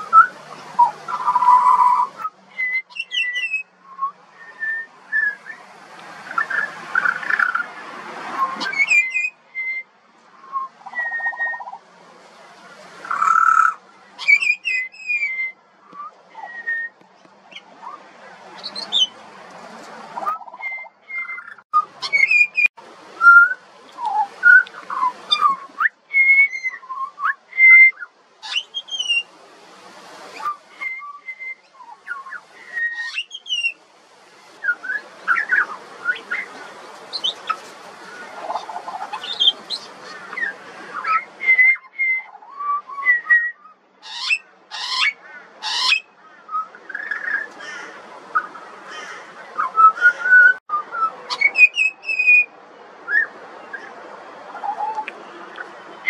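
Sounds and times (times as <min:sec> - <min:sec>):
bird singing whistled notes: 0:00.0 - 0:05.7, 0:06.3 - 0:07.7, 0:08.4 - 0:11.8, 0:13.0 - 0:18.0, 0:18.6 - 0:19.2, 0:20.2 - 0:29.3, 0:30.3 - 0:33.8, 0:34.6 - 0:36.5, 0:37.1 - 0:37.6, 0:38.5 - 0:47.5, 0:49.6 - 0:52.5, 0:53.1 - 0:53.9.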